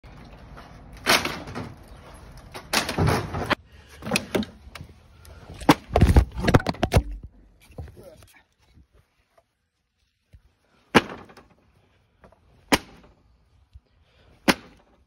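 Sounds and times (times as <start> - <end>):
wooden boards cracking: 0.9 - 4.6, 5.5 - 7.3, 10.9 - 11.6, 12.7 - 13.2.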